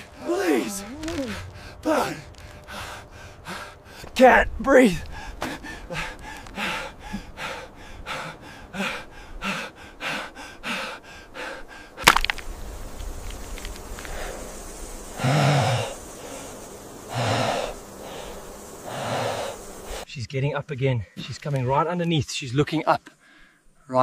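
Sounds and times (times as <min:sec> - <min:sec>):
man gasping for air: 0:05.1 - 0:11.8.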